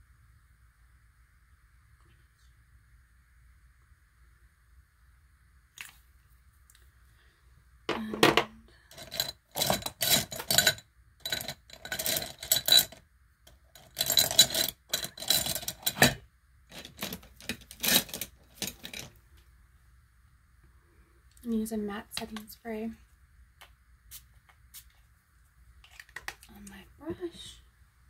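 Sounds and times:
small containers clattering: 7.9 - 19.2, 25.8 - 26.6.

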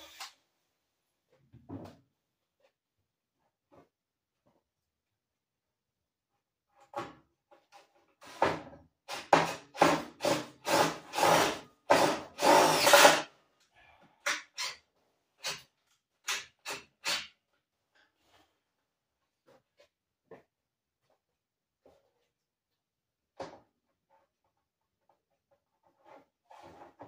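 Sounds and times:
power drill bursts: 10.2 - 13.3.

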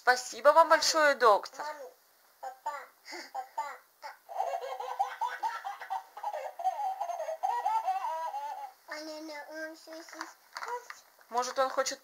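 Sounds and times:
high-pitched giggling: 3.3 - 8.7.

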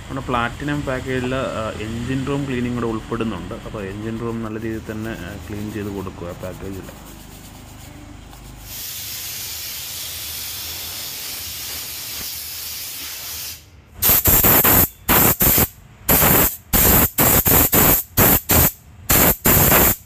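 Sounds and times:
steam gun hissing: 8.6 - 20.0
loud blasts of steam: 8.7 - 20.0.

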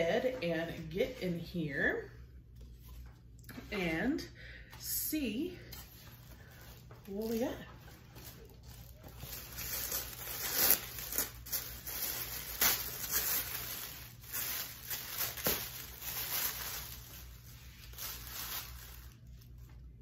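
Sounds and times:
packaging tearing and crinkling: 7.1 - 19.5.

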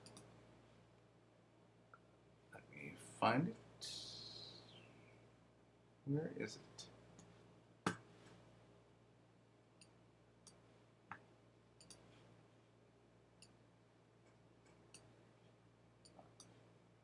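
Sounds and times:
computer mouse clicks: 0.0 - 0.3, 11.8 - 12.1
faint steady hum: 0.0 - 17.0.

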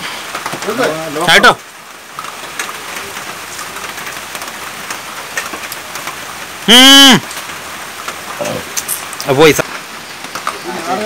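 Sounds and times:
rain pattering on water: 0.0 - 11.0
loud pitched call: 6.7 - 7.3.

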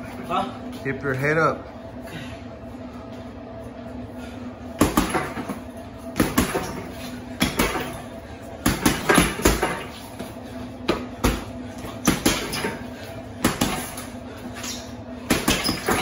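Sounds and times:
punches thudding on heavy bag: 4.8 - 5.6, 6.2 - 8.0, 8.6 - 9.9, 10.8 - 12.8, 13.4 - 14.1, 15.2 - 16.0.

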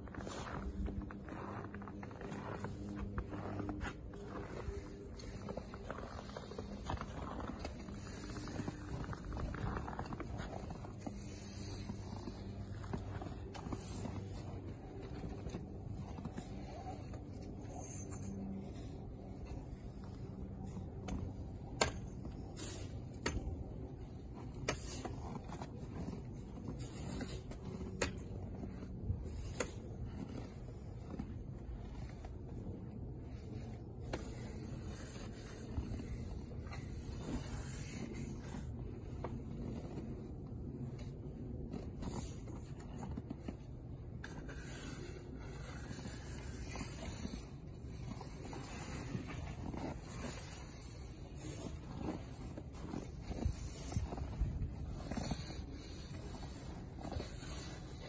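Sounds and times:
snow brush sweeping snow: 0.1 - 10.3.

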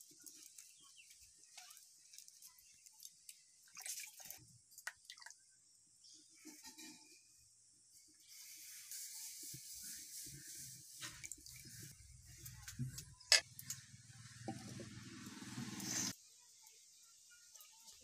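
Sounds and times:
batter hissing on hot pan: 8.2 - 11.1, 15.3 - 16.2.

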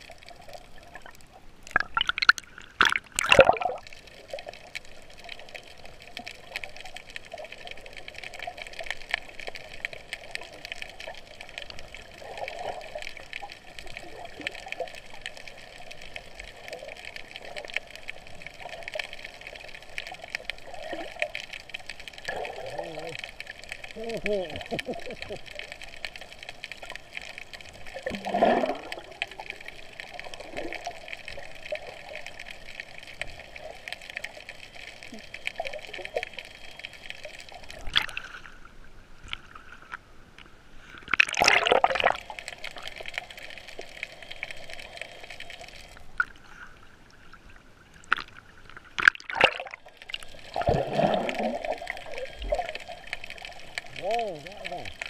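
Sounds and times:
water gurgling and sloshing: 0.0 - 15.3, 26.3 - 55.0
underwater hum: 0.0 - 55.0
splash: 1.7 - 4.4, 27.9 - 29.4, 41.0 - 43.0, 48.0 - 55.0.

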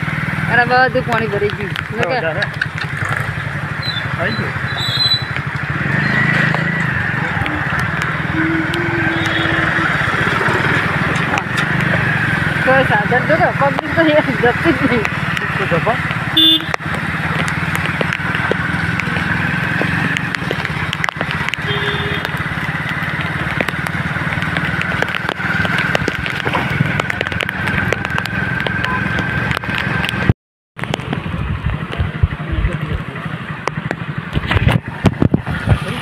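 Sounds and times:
motorcycle engine and road noise: 0.0 - 36.0
wind crackling on microphone: 16.8 - 32.8, 33.7 - 36.0.

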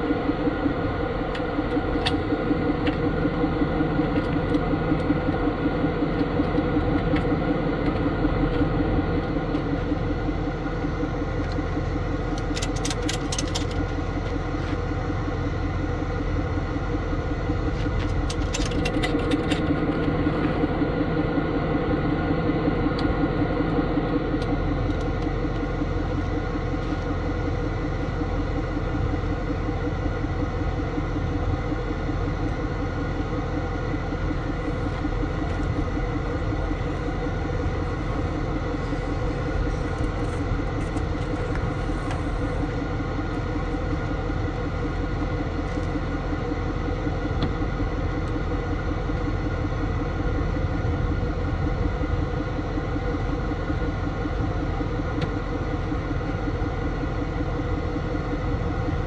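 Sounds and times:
truck engine idling: 0.0 - 59.0.

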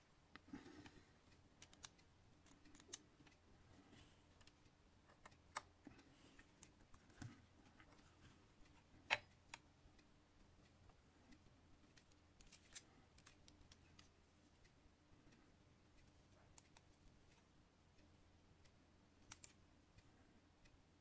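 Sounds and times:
clicks and taps handling wires: 4.0 - 9.6.

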